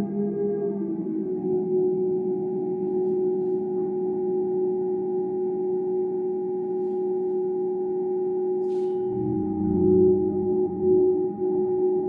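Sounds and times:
steady drone tone: 0.0s - 12.0s.

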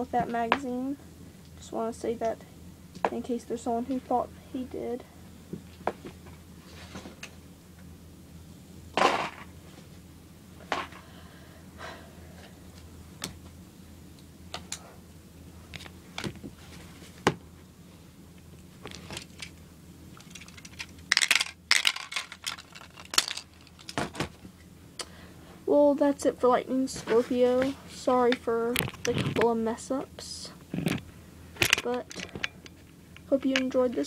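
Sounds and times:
plastic clatter: 20.2s - 24.4s.

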